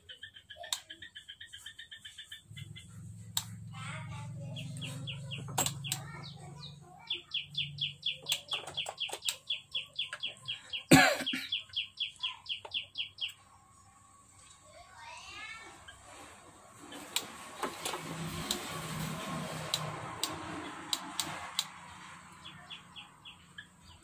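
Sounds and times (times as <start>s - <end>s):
small animal chirping: 0.0s - 10.9s.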